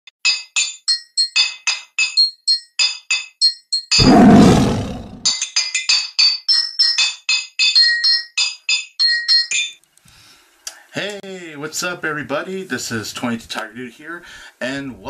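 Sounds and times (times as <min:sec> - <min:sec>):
tiger roar: 0:04.0 - 0:05.3.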